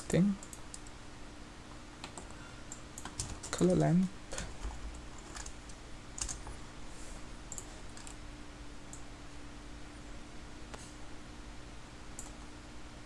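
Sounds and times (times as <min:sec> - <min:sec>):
faint steady hum: 0:00.0 - 0:13.0
keyboard and mouse clicks: 0:02.0 - 0:03.7, 0:04.4 - 0:06.5, 0:07.5 - 0:08.2, 0:12.1 - 0:12.5.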